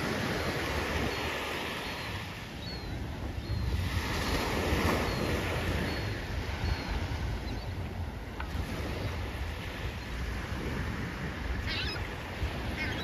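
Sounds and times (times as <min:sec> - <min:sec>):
waves washing onto sand: 0:00.0 - 0:13.0
wind buffeting microphone: 0:00.0 - 0:13.0.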